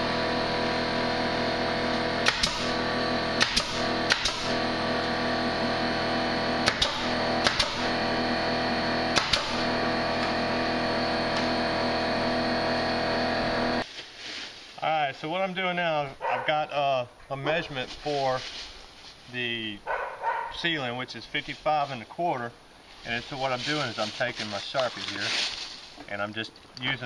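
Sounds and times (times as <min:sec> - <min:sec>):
steady musical drone: 0:00.0 - 0:13.8
pneumatic nail gun firing: 0:01.9 - 0:04.8, 0:06.5 - 0:08.4, 0:09.0 - 0:10.6.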